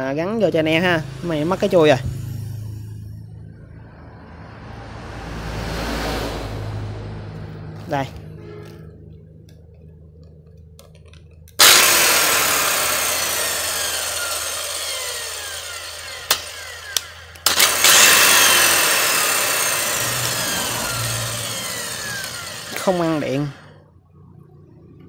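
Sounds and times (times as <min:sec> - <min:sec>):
circular saw running: 0:11.6 - 0:23.8.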